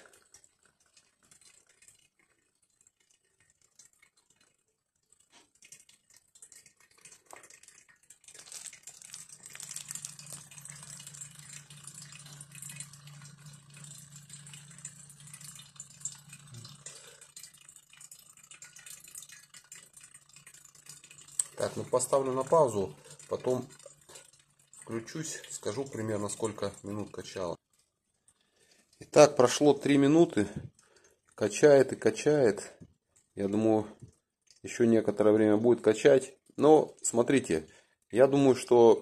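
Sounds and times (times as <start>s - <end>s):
liquid hissing through tubing: 6.6s - 17.6s, 18.3s - 27.4s
small pump humming: 8.8s - 27.5s.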